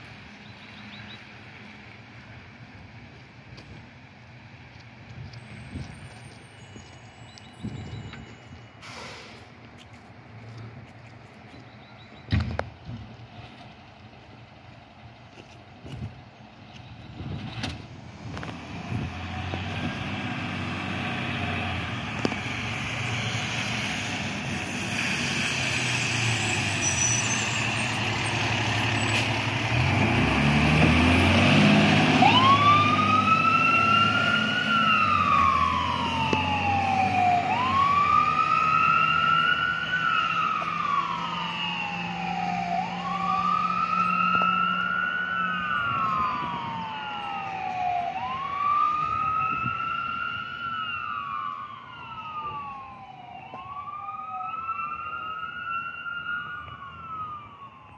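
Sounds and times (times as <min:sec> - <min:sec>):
fire engine passing: 0:00.0 - 0:57.9
siren wailing: 0:25.7 - 0:57.9.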